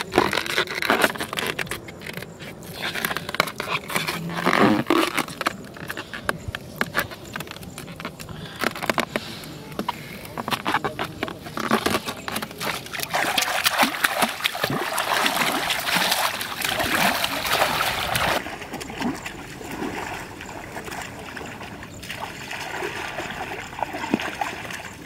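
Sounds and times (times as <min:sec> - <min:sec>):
hands splashing in water: 0:06.8 - 0:25.0.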